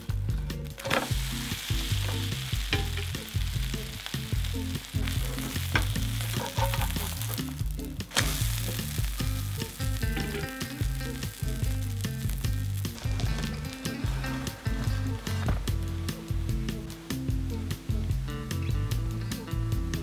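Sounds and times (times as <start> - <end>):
background music with bass: 0.0 - 20.0
pancake sizzling in oil: 0.7 - 15.4
spatula scraping a pan: 4.9 - 7.5.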